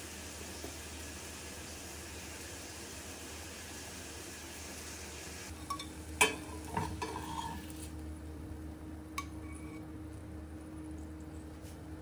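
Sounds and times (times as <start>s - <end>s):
faint steady hum: 0.0s - 12.0s
kitchenware clinking: 5.6s - 7.7s.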